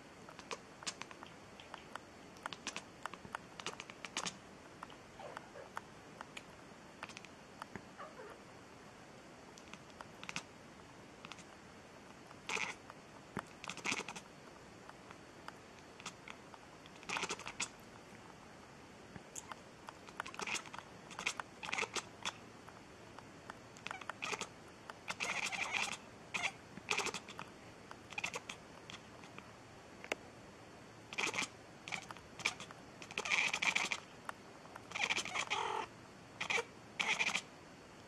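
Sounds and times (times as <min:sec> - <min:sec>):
cat mewing and chirping: 0:05.1 - 0:05.8, 0:08.0 - 0:08.4, 0:12.4 - 0:12.8, 0:13.6 - 0:14.2, 0:17.0 - 0:17.7, 0:20.1 - 0:22.4, 0:23.8 - 0:27.4, 0:28.0 - 0:29.4, 0:31.1 - 0:34.1, 0:34.9 - 0:37.5.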